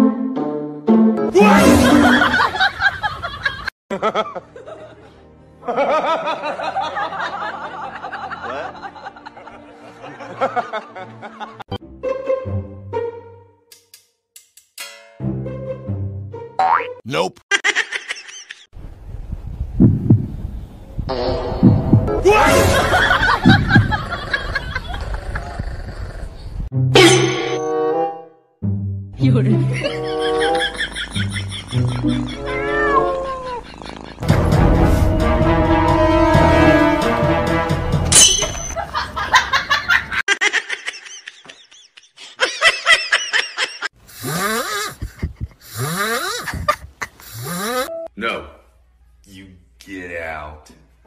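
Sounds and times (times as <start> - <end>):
heartbeat thumps through speaker: 19.3 - 20.5, 21.6 - 22.2, 23.4 - 24.0, 45.0 - 45.6
person giggling: 29.9 - 32.6, 40.3 - 47.9.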